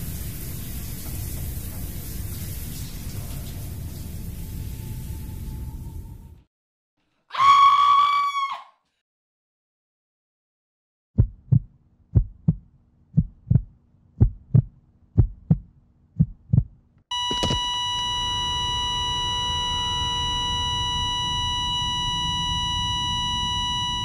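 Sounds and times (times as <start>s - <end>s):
low rumble: 3.1s - 6.5s
heartbeat double thumps: 11.2s - 17.6s
high ringing tone: 17.1s - 24.0s.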